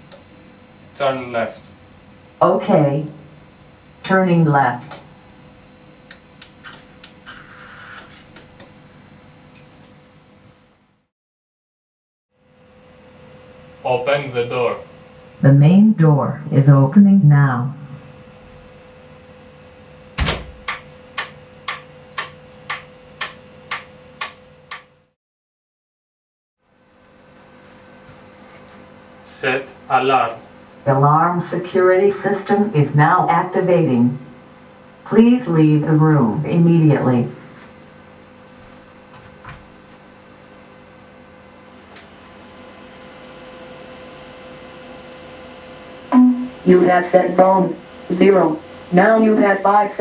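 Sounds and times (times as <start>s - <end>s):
steady electrical hum: 0.0s - 11.1s, 12.4s - 25.2s, 26.7s - 50.0s
electric lock clunk: 20.2s - 24.9s.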